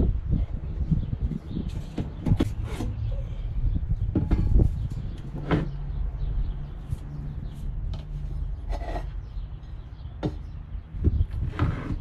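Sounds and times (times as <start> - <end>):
furniture scraping and knocking: 11.1 - 12.0.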